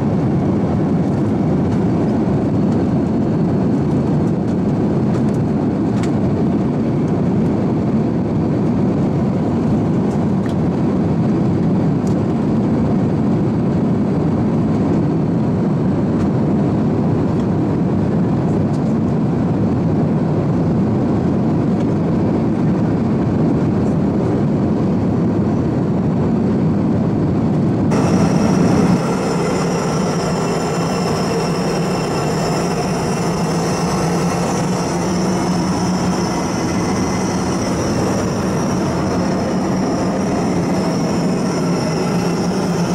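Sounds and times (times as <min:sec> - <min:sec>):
airplane cabin roar: 0:00.0 - 0:42.9
whining engine tones: 0:27.9 - 0:42.9.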